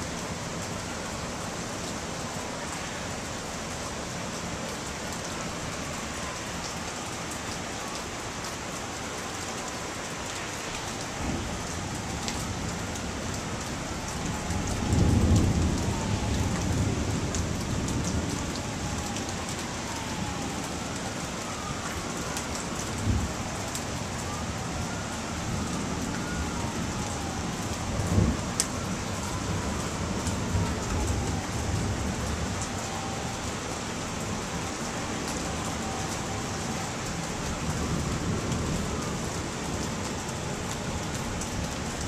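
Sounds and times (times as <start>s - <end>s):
steady rain: 0.0s - 42.0s
thunder rumble: 14.2s - 20.5s.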